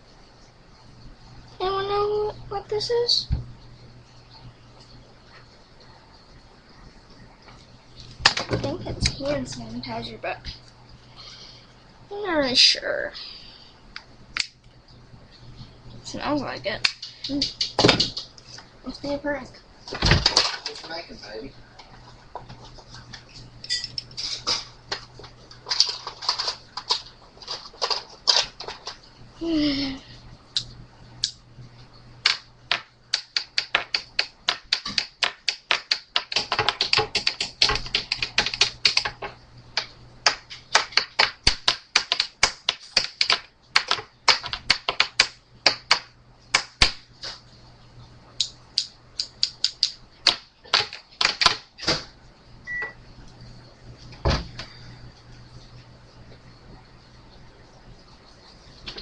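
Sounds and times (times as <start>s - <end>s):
keyboard typing: 32.2s - 46.1s, 49.2s - 51.7s.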